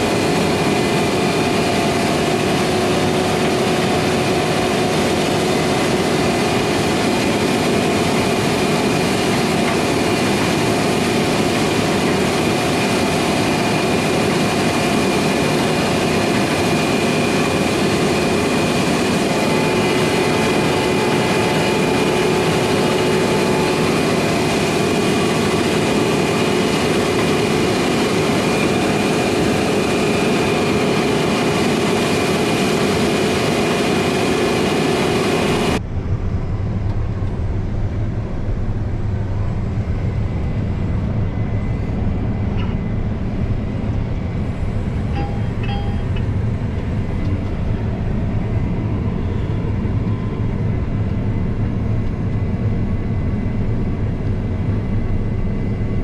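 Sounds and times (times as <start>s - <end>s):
loud machine noise with whining tones: 0.0s - 56.0s.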